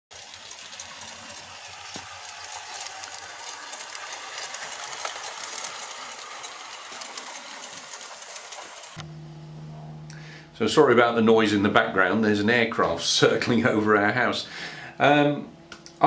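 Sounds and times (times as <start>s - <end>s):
model train rolling: 0.1s - 9.0s.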